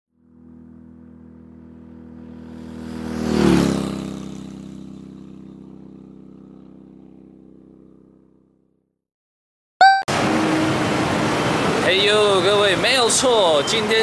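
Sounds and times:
motor vehicle passing: 0:00.2 - 0:08.4.

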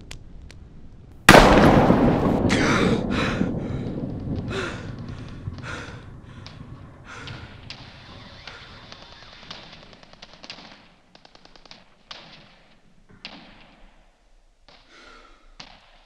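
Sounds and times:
loud bang with rumbling tail: 0:01.3 - 0:08.8.

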